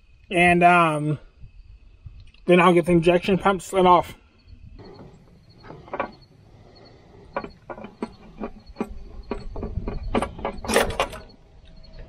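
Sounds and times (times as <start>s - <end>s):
metallic clicks and knocks: 4.8s - 12.0s.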